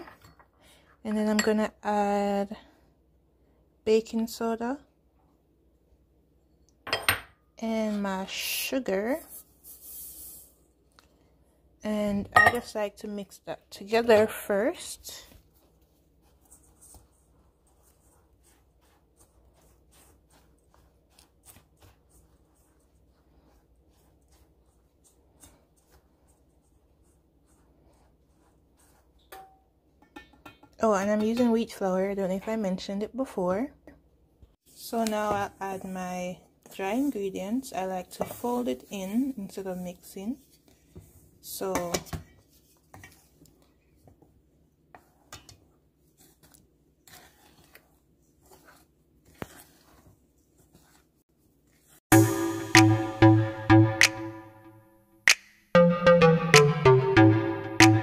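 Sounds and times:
whisk swishing in a metal bowl: 13.9s - 29.5s, 36.7s - 41.2s, 44.9s - 52.0s
electronic music with a beat: 52.1s - 54.7s, 55.8s - 58.0s.

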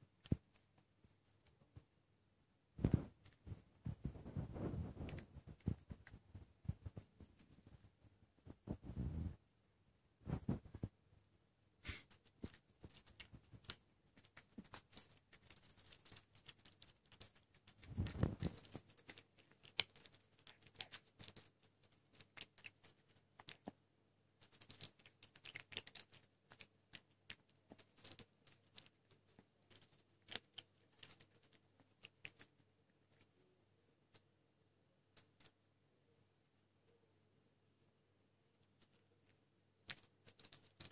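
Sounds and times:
kitten crunching dry food: 2.8s - 7.8s, 12.0s - 23.8s, 24.4s - 33.4s, 39.8s - 40.9s.

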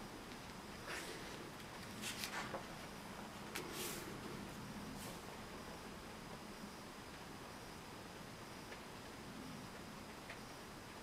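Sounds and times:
steady hiss: 0.0s - 11.0s
paper page rustling: 1.8s - 2.6s
hand swishing over paper: 3.6s - 4.1s.

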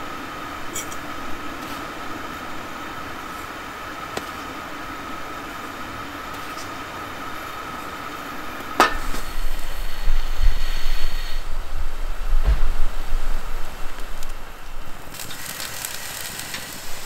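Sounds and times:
gas burner rumbling and hissing: 0.0s - 17.0s
steady hiss with faint high tone: 0.0s - 17.0s.

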